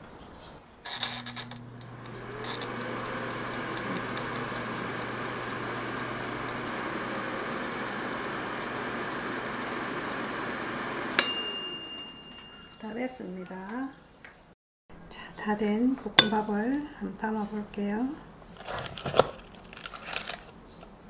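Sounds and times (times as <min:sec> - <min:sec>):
air fryer fan whirring: 0:00.9 - 0:12.8.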